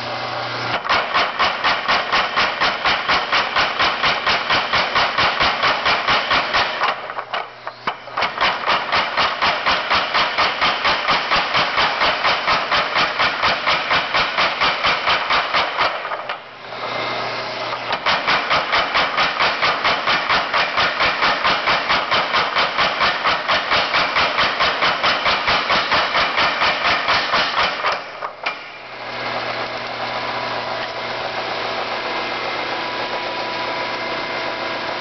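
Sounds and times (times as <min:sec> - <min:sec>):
hammer motor running: 0:00.0 - 0:35.0
power hammer striking hot metal: 0:00.7 - 0:16.6, 0:17.7 - 0:28.9.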